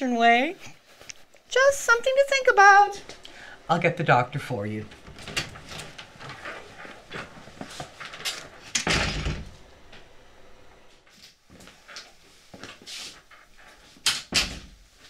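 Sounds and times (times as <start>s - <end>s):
footsteps: 0.6s - 3.7s, 4.3s - 8.8s
door closing: 4.3s - 10.9s.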